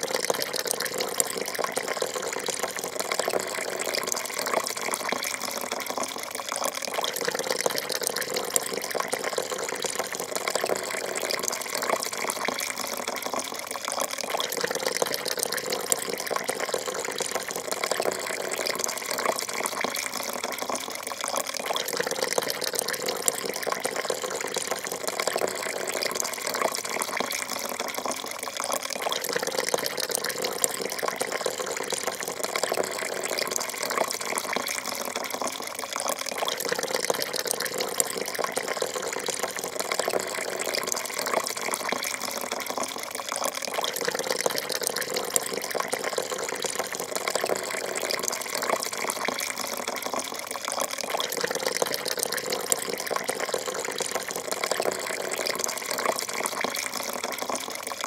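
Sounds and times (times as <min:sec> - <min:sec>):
coffee pouring into a cup: 0:00.0 - 0:58.0.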